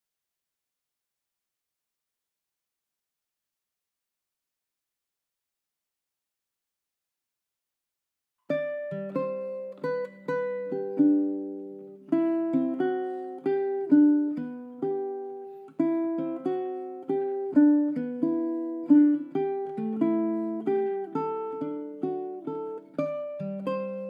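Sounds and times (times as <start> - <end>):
ukulele fingerstyle melody: 8.5 - 24.0.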